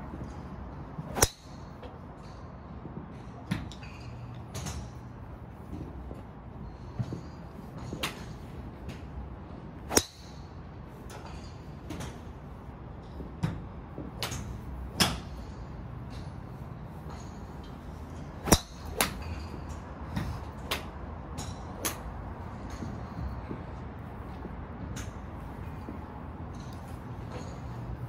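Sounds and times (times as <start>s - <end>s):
low background hum: 0.0s - 28.0s
golf club striking ball: 9.9s - 10.4s, 18.4s - 19.4s.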